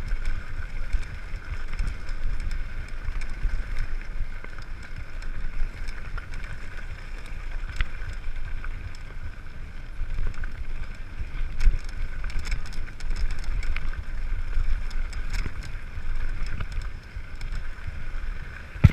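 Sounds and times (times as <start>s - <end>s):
bike clicks and rattles: 0.0s - 18.9s
bike tyre rumble on gravel: 0.0s - 18.9s
wind buffeting microphone: 8.8s - 18.9s.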